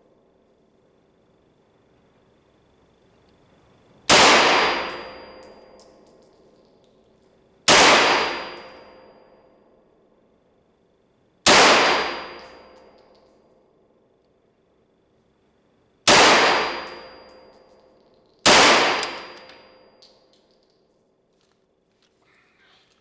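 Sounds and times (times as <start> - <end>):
gunshots echoing indoors: 4.1 - 6.2, 7.7 - 9.2, 11.4 - 13.2, 16.0 - 17.8, 18.4 - 20.2
brass casings tinkling: 4.7 - 7.6, 12.1 - 14.0, 16.6 - 21.4.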